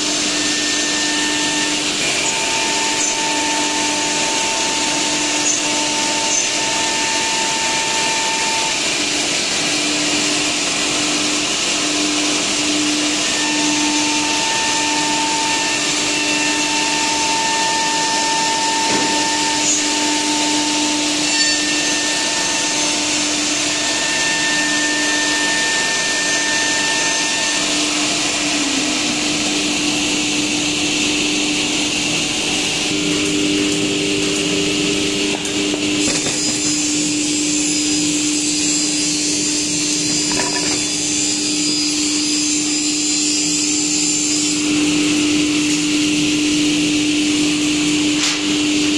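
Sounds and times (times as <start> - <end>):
humming motor: 22.2 - 38.6.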